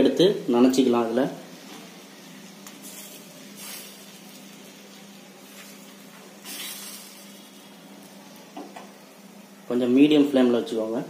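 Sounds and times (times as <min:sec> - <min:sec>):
egg sizzling on hot pan: 0:01.4 - 0:09.6.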